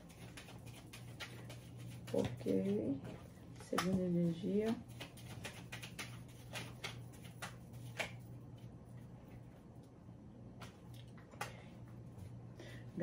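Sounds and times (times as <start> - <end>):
cards being shuffled: 0.0 - 2.9, 3.7 - 8.5
faint steady hum: 0.0 - 13.0.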